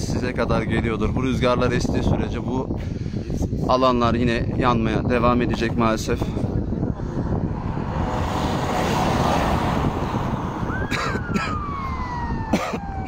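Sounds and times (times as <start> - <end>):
wind noise on microphone: 0.0 - 13.0
distant siren: 7.6 - 13.0.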